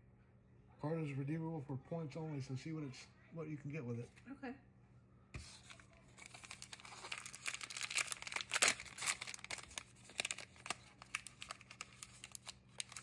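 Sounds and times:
wrapper crinkling and tearing: 5.6 - 13.0.

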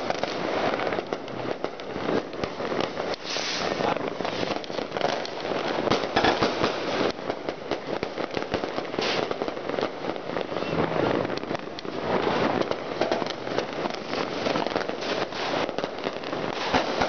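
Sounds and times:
firecrackers popping and crackling: 0.0 - 17.0.

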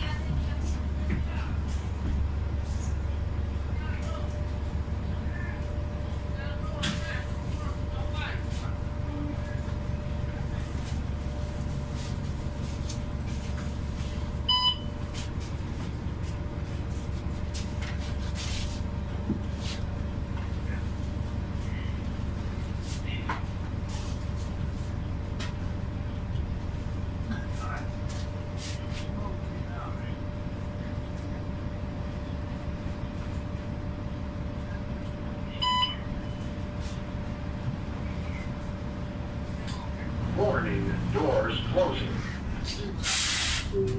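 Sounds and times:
bus engine rumbling: 0.0 - 43.9
short electronic beep: 14.5 - 14.9, 35.6 - 36.0.

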